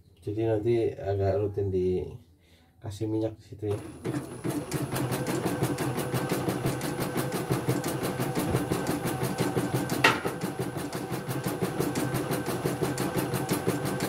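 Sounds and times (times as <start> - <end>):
embroidery machine stitching: 3.7 - 14.0.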